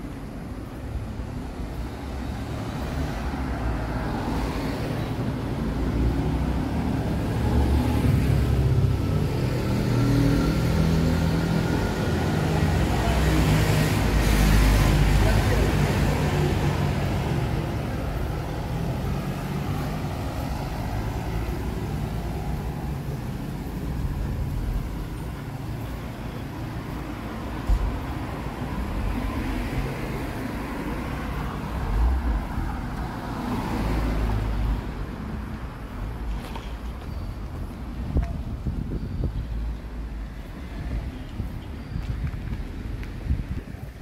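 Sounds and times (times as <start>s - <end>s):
passing cars rumbling: 0.0s - 44.0s.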